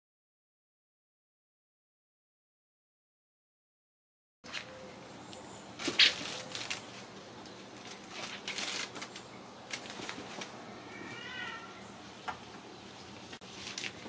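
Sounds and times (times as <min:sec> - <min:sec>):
kitten meow: 0:10.9 - 0:11.8.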